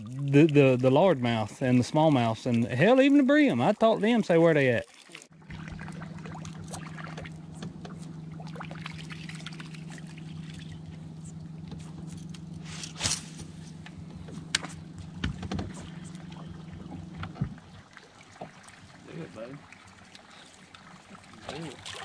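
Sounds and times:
propeller churning water: 0.0 - 22.0
electric trolling motor humming: 5.3 - 22.0.

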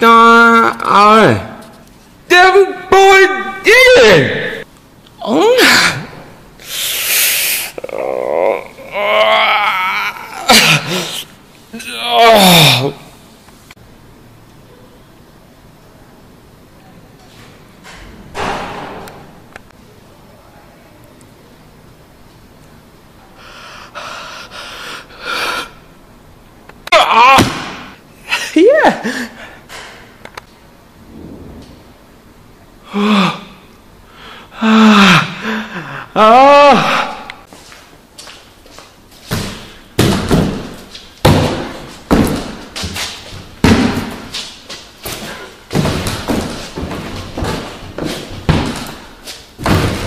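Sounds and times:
man breathing and snorting: 6.6 - 8.7, 23.3 - 25.9
high wavering vocal cry: 7.1 - 11.2.

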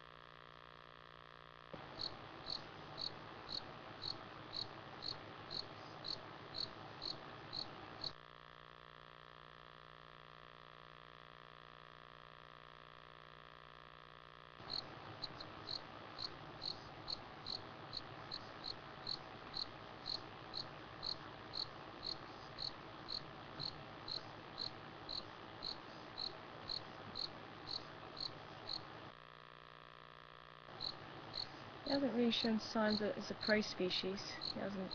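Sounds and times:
faint steady hum: 0.0 - 34.9
cricket chirping: 1.8 - 8.2, 14.6 - 29.0, 30.7 - 32.0.

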